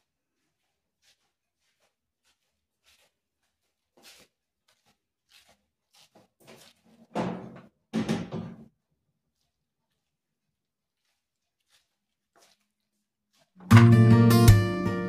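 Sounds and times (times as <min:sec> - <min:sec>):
cookware clattering thuds: 0:07.1 - 0:08.7.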